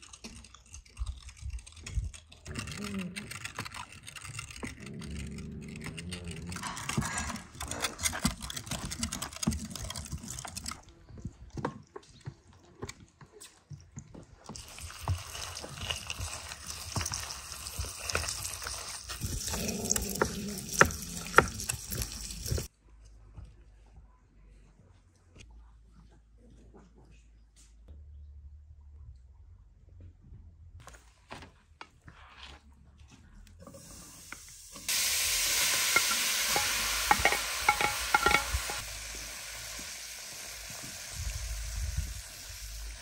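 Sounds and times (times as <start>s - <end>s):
meat grinder squelching: 14.5s - 22.7s.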